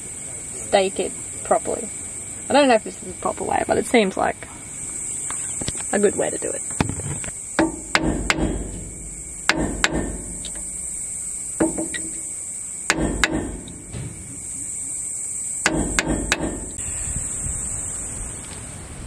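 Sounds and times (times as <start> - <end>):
hammer striking metal punch: 7.6 - 14.8, 15.6 - 16.8.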